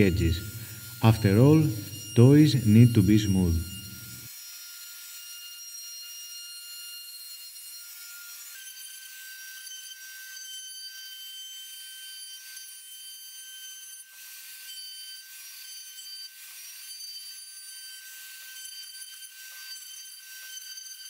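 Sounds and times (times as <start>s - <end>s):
trim router whining: 0.0s - 4.3s
router bit cutting wood: 0.0s - 11.4s.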